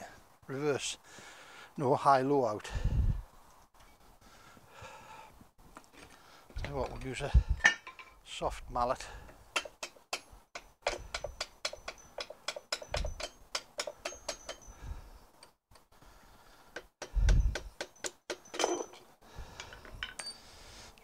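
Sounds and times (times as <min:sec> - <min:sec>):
mallet tapping a metal shaft: 0:09.6 - 0:14.7.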